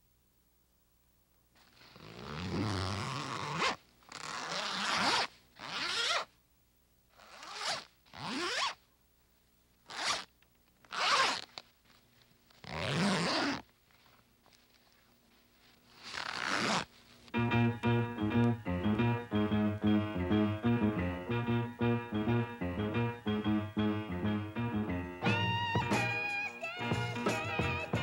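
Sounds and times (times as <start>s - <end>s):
zippers being zipped: 1.6s - 6.3s, 7.1s - 8.8s, 9.8s - 11.6s, 12.5s - 13.7s, 15.8s - 17.0s.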